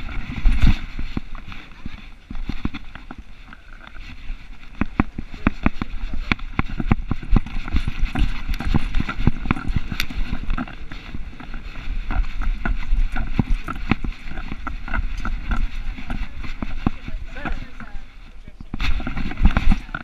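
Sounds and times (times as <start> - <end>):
wind and handling rumble: 0.0 - 20.0.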